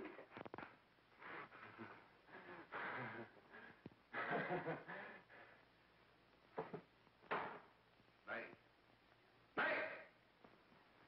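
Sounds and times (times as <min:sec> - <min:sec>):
short bursts of person's voice: 0:09.6 - 0:10.2.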